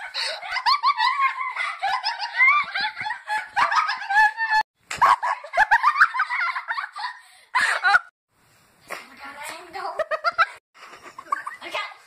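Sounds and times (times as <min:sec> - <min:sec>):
girls laughing hysterically: 0:00.0 - 0:08.1.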